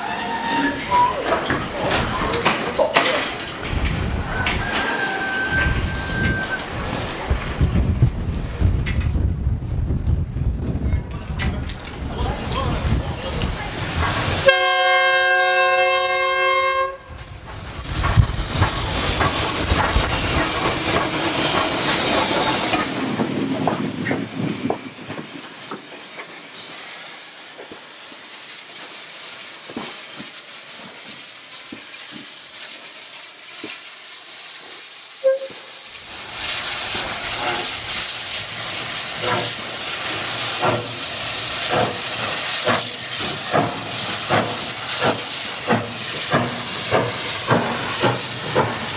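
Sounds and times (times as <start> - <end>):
steam whistle blast: 0.0 - 1.2, 4.3 - 6.7, 14.4 - 17.1, 35.2 - 35.8
steam hissing: 0.0 - 8.8, 11.8 - 48.9
train clanks and clicks: 0.0 - 48.9.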